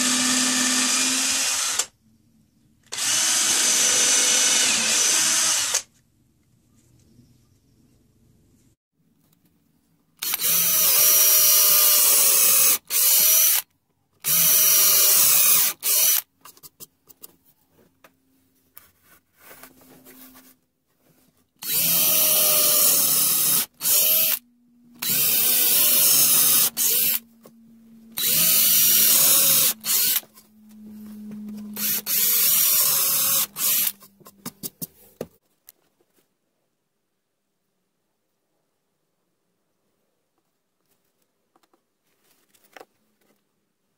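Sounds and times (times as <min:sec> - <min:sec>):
drill boring into wood: 0:00.0 - 0:01.9, 0:02.9 - 0:05.9, 0:10.2 - 0:13.6, 0:14.2 - 0:16.2, 0:21.6 - 0:24.4, 0:25.0 - 0:27.2, 0:28.1 - 0:30.3, 0:31.7 - 0:34.0.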